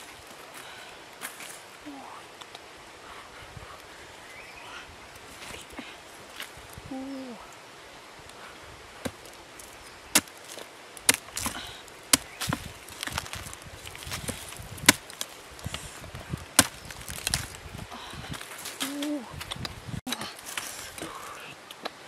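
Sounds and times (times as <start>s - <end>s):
machete chopping wood: 10.2s - 15.3s, 16.6s - 17.5s.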